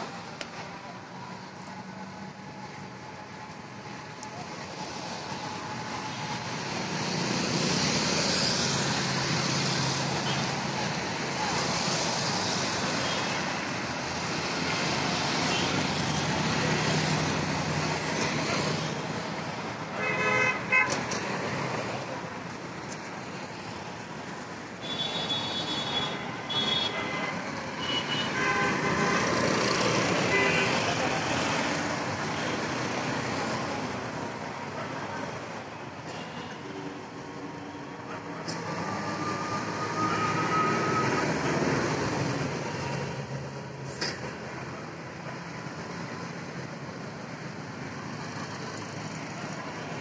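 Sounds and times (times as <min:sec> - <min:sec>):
road traffic rush: 0:00.0 - 0:50.0.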